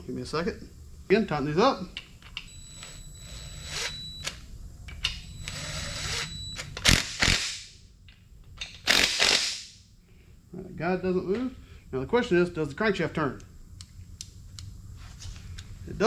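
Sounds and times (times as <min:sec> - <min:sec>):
cordless drill running: 0:02.8 - 0:04.1, 0:05.4 - 0:06.3.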